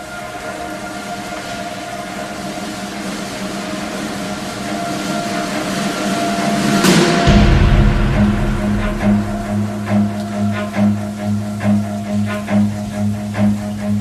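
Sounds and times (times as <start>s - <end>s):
loud low rumble: 6.5s - 12.8s.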